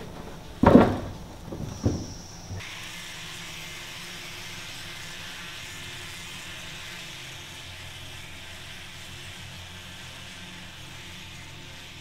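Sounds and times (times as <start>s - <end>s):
angle grinder sanding wood: 0.0s - 12.0s.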